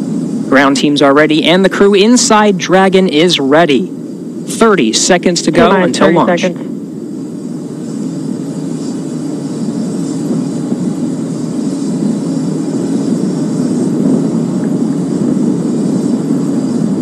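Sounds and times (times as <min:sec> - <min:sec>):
rocket venting vapour rushing: 0:04.1 - 0:07.0.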